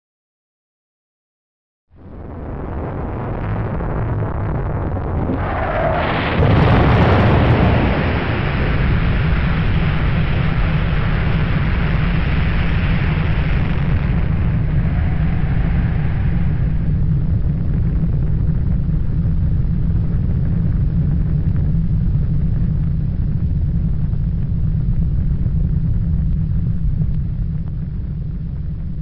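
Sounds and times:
rumble of huge explosion: 0:01.9 - 0:29.0.

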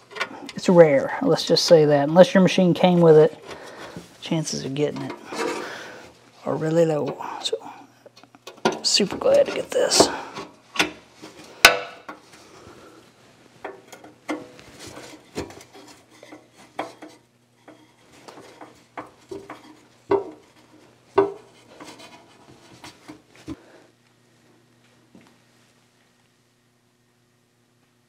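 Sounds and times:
tools scraping on steel: 0:13.7 - 0:23.2.

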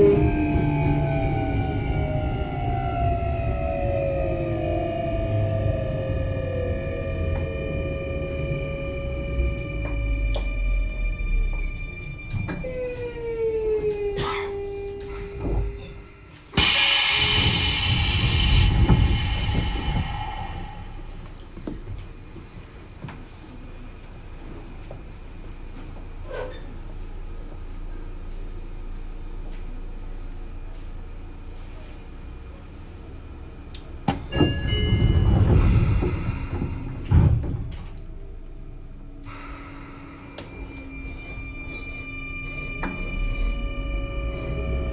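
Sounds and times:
low hum of standing train: 0:00.0 - 0:44.9
train clunk: 0:09.4 - 0:22.4, 0:34.0 - 0:38.2
train doors sliding shut: 0:16.6 - 0:21.1, 0:34.1 - 0:38.0
loud hiss of air: 0:16.6 - 0:21.2.

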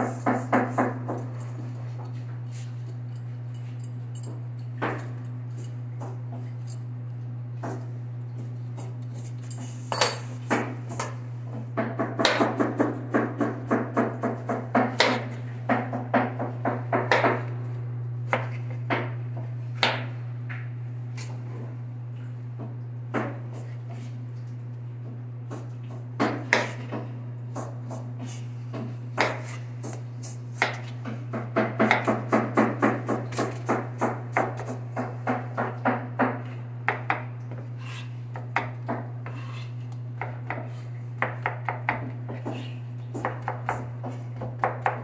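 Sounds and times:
steady low hum: 0:00.0 - 0:45.0
knife chopping on plastic board: 0:11.8 - 0:17.4, 0:25.5 - 0:28.1, 0:28.7 - 0:30.0, 0:30.6 - 0:45.0.

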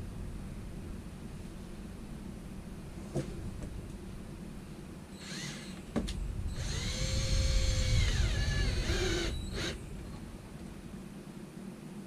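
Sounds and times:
cordless drill driving a screw: 0:05.2 - 0:05.8, 0:06.5 - 0:09.8.

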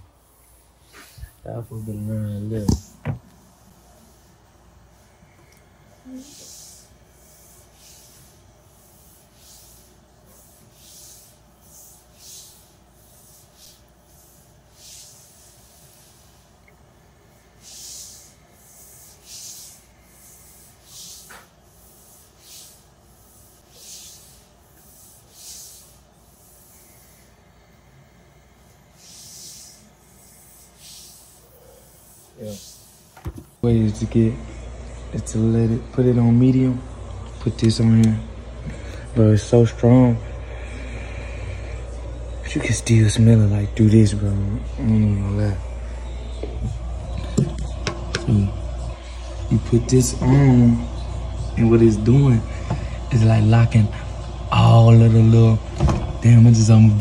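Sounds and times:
person breathing hard: 0:40.2 - 0:42.0.

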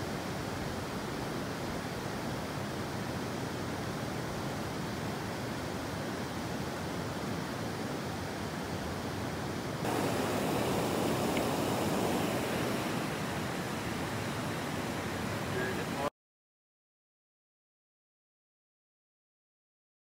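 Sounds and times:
river water rushing over rocks: 0:00.2 - 0:16.1.

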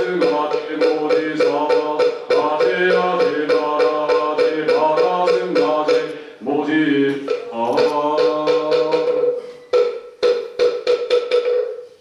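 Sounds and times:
wooden fish drum strikes: 0:00.0 - 0:06.2, 0:07.1 - 0:11.8
men chanting: 0:00.0 - 0:09.4.

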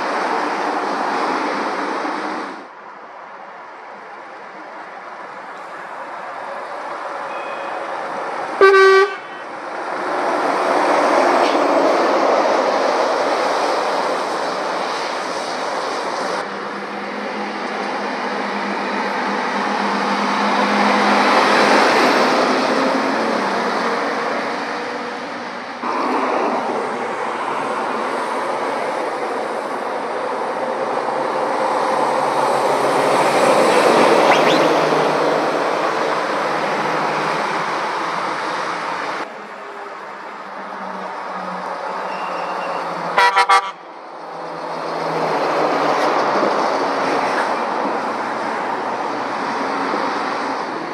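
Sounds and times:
lorries passing: 0:00.0 - 0:50.9
vehicle horn toot: 0:07.3 - 0:07.8, 0:08.6 - 0:09.5, 0:43.2 - 0:43.8.

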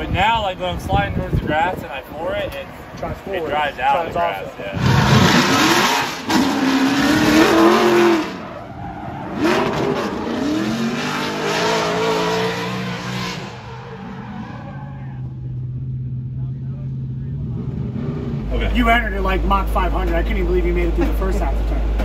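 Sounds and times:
car engine revving: 0:04.7 - 0:19.7.

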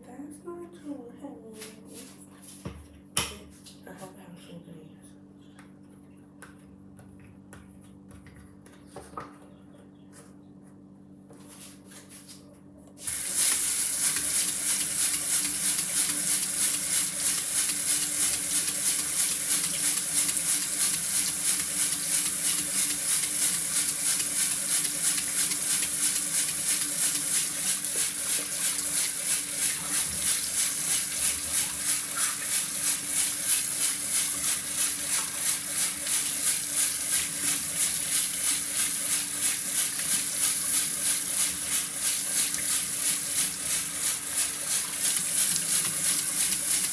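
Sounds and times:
water running into basin: 0:13.0 - 0:46.9.

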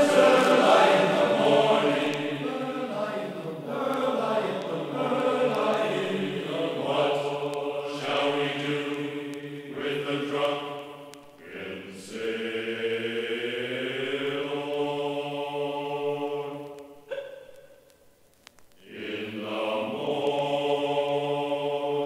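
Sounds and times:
person singing chant-like: 0:00.0 - 0:10.7, 0:18.8 - 0:22.0.

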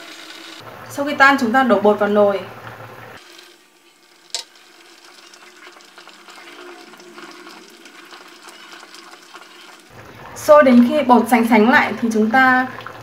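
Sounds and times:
soup simmering: 0:02.1 - 0:13.0
chopsticks stirring pot: 0:03.2 - 0:11.0.

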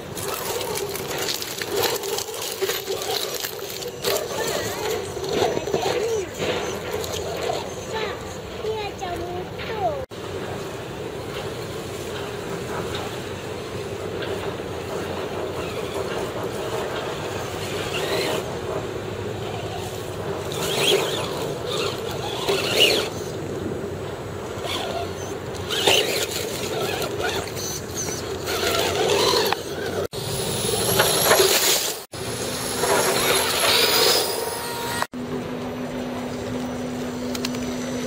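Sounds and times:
tyres scrabbling over dirt: 0:00.0 - 0:10.0, 0:11.2 - 0:30.1
rc truck motor and gear whine: 0:00.0 - 0:38.0.

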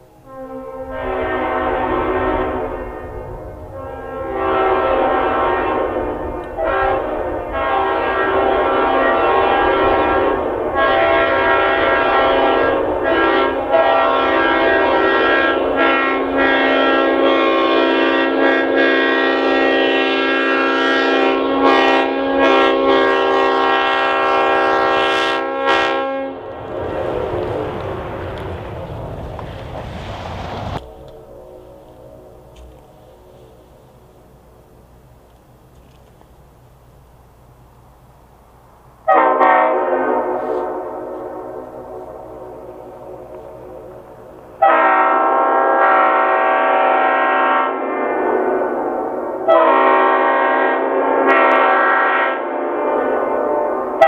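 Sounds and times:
air horn chord blasts: 0:00.2 - 0:26.5, 0:39.1 - 0:44.0, 0:44.6 - 0:48.2, 0:49.5 - 0:52.5.

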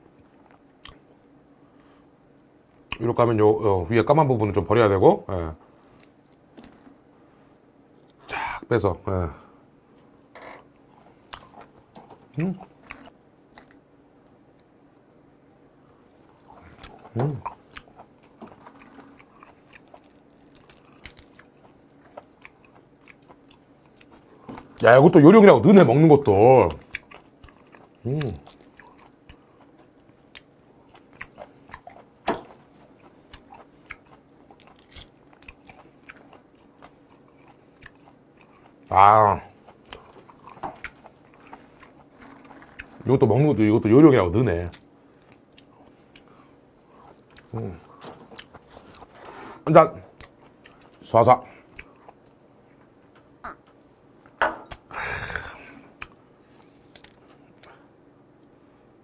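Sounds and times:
close chewing and crunching: 0:00.2 - 0:01.3, 0:05.7 - 0:06.5, 0:10.6 - 0:14.7, 0:16.2 - 0:25.2, 0:26.0 - 0:49.4, 0:50.1 - 0:52.8, 0:54.7 - 0:57.9
short raspy exhale: 0:54.9 - 0:55.9.

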